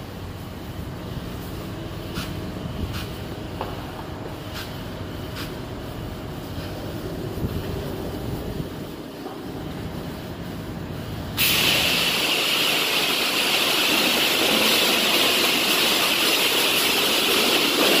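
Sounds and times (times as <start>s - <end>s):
pressure washer spraying: 11.4s - 18.0s.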